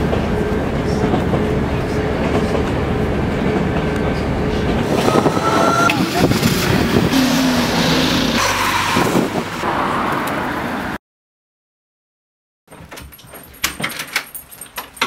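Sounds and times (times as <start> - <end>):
passing vehicle noise: 4.8 - 11.0.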